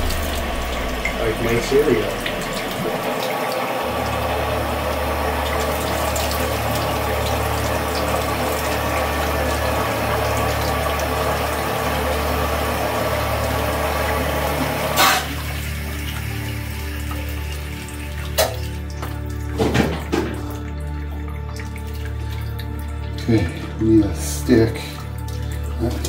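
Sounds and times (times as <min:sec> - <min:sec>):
water splashing onto concrete floor: 0:00.0 - 0:11.7, 0:13.2 - 0:23.8, 0:24.8 - 0:26.0
low steady hum: 0:00.0 - 0:18.9.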